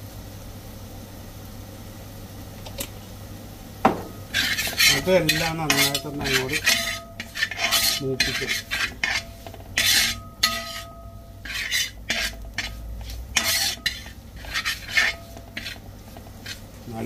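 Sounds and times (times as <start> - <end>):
spoon stirring and scraping pan: 3.9 - 17.0.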